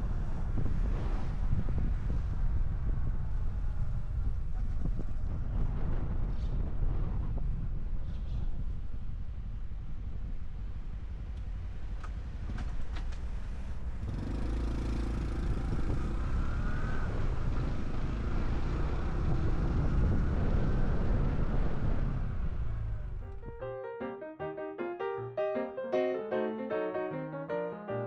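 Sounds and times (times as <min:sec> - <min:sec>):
wind on microphone: 0:00.0 - 0:11.1, 0:15.3 - 0:22.9.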